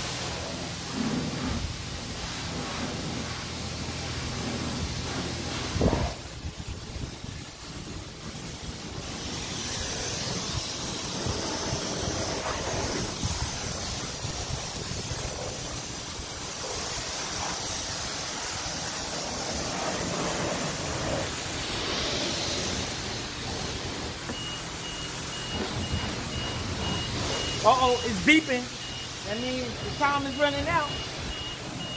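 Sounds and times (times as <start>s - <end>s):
pressure washer spraying water: 0.0s - 31.9s
high beeping timer: 24.3s - 31.9s.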